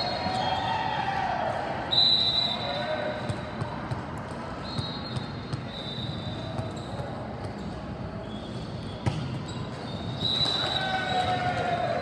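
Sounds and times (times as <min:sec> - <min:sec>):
volleyballs bouncing and hit: 0:03.1 - 0:11.7.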